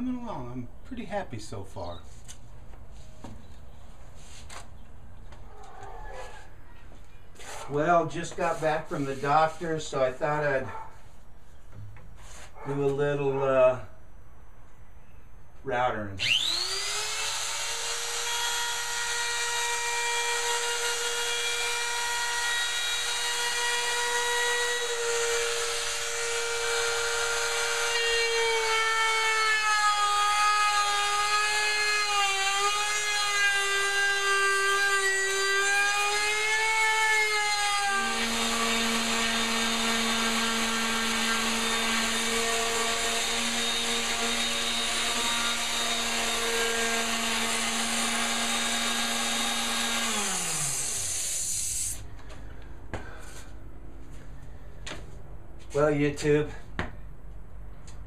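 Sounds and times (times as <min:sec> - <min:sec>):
trim router whining: 0:16.2 - 0:52.0.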